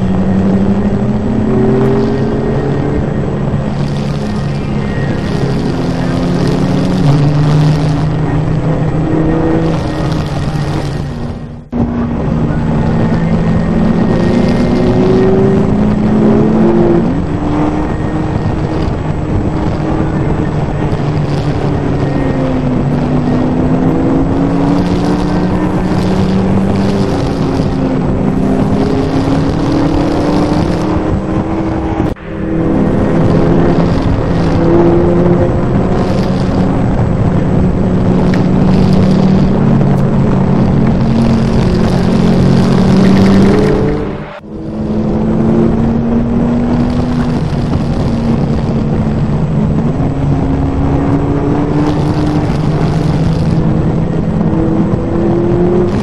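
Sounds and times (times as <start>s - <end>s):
car engine running under load: 0.0s - 56.0s.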